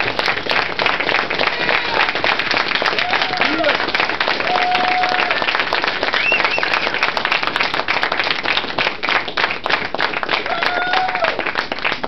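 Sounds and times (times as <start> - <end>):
crowd applauding: 0.0 - 12.0
crowd cheering: 1.4 - 7.3, 10.3 - 11.6.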